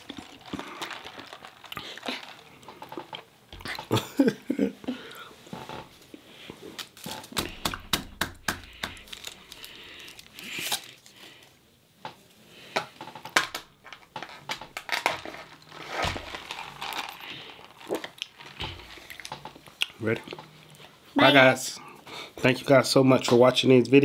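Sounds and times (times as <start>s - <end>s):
packaging crinkling and rustling: 0.0s - 3.9s, 8.9s - 11.2s, 13.0s - 20.6s.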